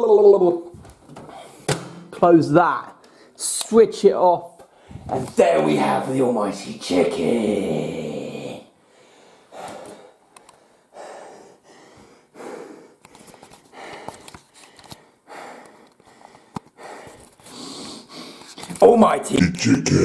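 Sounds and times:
man breathing heavily: 4.7s - 5.1s, 8.8s - 18.6s.

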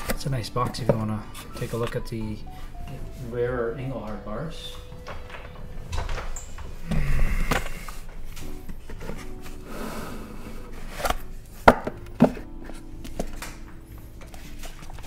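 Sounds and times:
boxes rustling on a table: 7.5s - 9.7s.

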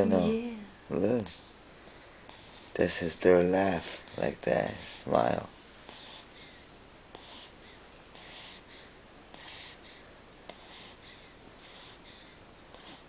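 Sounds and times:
baby breathing softly: 1.3s - 2.9s, 3.8s - 5.0s, 5.8s - 13.0s.

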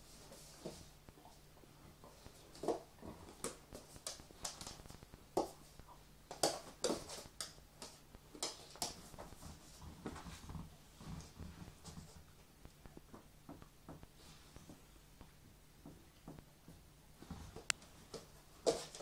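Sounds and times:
dogs scuffling: 0.0s - 13.3s, 17.2s - 19.0s.

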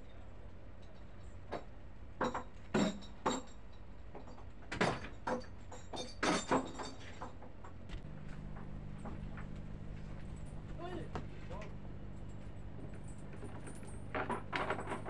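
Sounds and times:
low steady hum: 7.8s - 15.0s.

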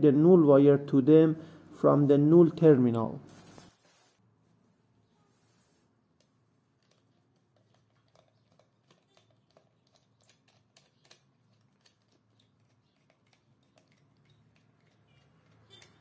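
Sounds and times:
screwdriver clicks and scrapes: 13.2s - 16.0s.

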